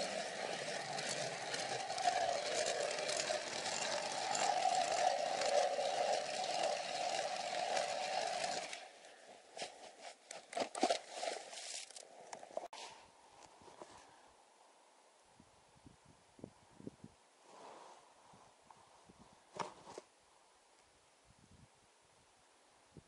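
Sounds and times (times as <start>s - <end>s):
ice auger grinding through ice: 0.0s - 9.2s.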